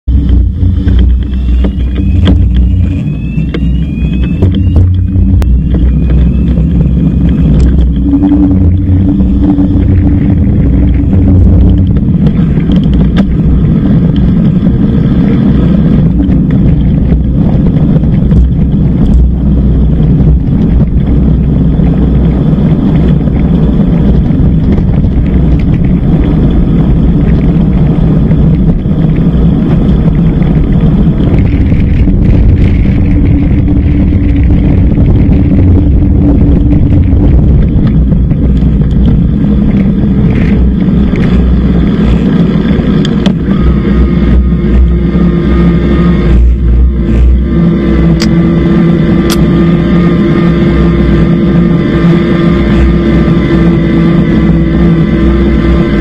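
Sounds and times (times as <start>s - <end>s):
tyre and road noise: 0.0s - 56.0s
wind buffeting microphone: 0.0s - 56.0s.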